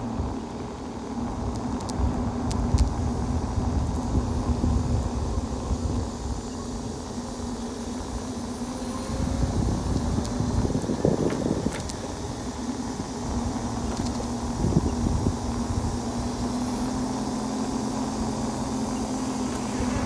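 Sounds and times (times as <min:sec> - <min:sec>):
tyre noise on paved road: 0:00.0 - 0:20.0
wind buffeting: 0:08.1 - 0:16.5.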